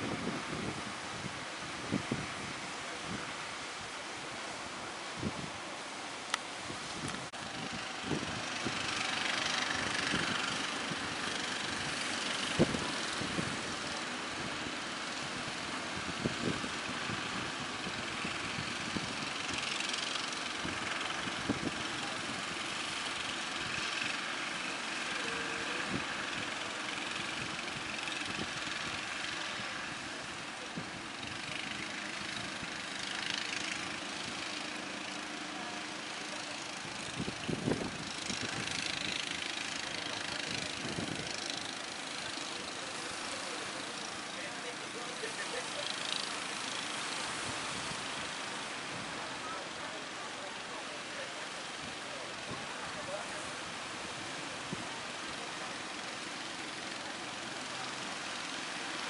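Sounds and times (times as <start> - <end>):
boat engines running: 0.0 - 59.0
waves washing: 38.1 - 59.0.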